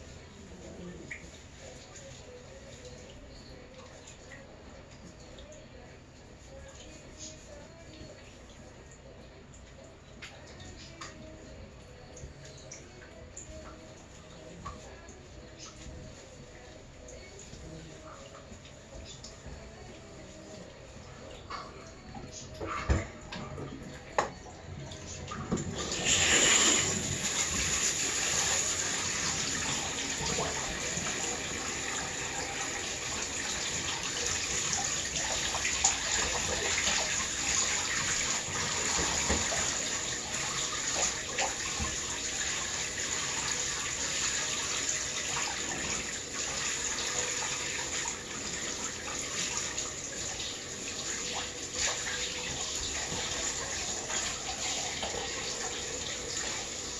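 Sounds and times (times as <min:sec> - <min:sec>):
water running into bathtub: 0:22.6 - 0:56.9.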